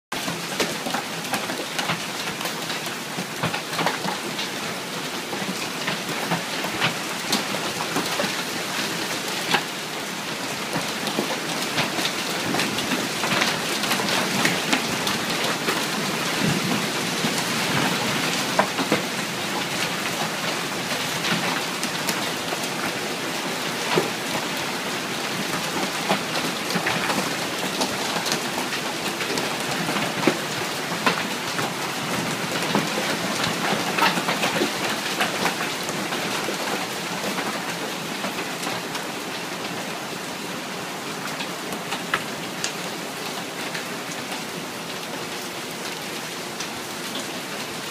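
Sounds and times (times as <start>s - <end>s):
hail and heavy rain pelting: 0.1s - 47.9s
hailstones clicking: 25.3s - 39.0s.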